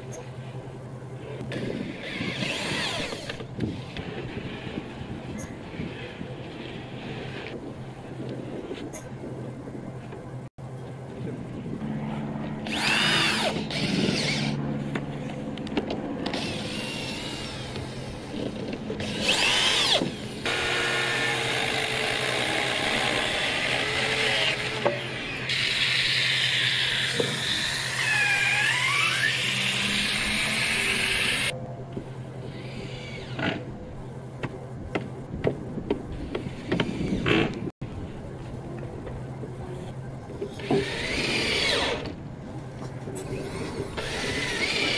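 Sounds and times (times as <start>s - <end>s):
steady low hum: 0.0s - 44.9s
cordless drills whirring: 12.7s - 14.5s, 19.0s - 31.5s, 43.7s - 44.9s.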